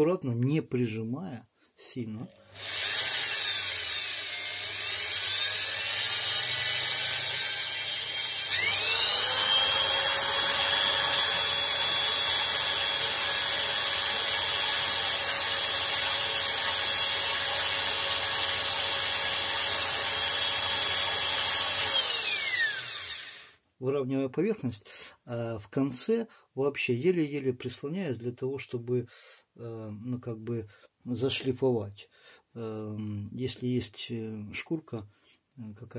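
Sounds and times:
corded drill whining: 0:02.2 - 0:23.6
file against spinning commutator: 0:02.4 - 0:23.4.

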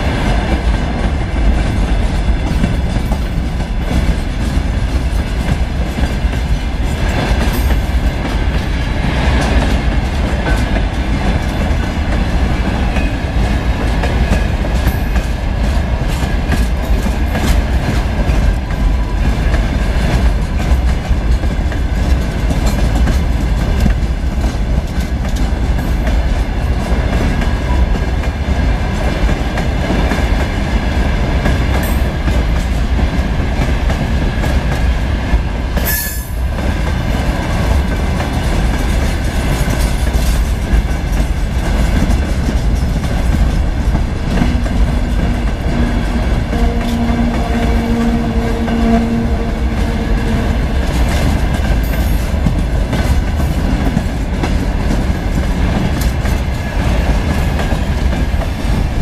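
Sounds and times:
steel wheels rumbling on rail: 0:00.0 - 0:59.0
wheels clacking over rail joints: 0:35.7 - 0:59.0.

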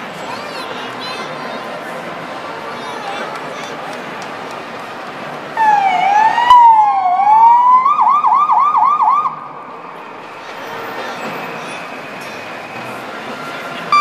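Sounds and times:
police siren wail and yelp: 0:05.6 - 0:09.4.

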